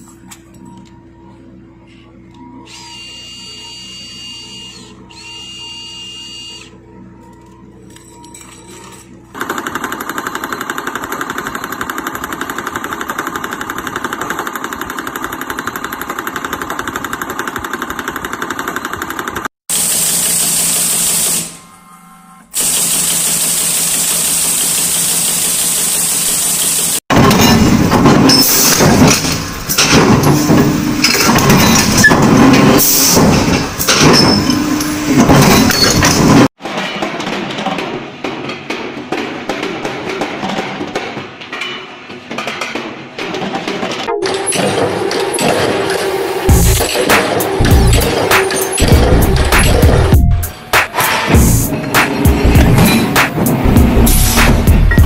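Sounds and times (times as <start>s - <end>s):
loud machine noise: 2.5s - 36.6s, 43.3s - 55.0s
nail-making machine clattering: 27.1s - 50.1s.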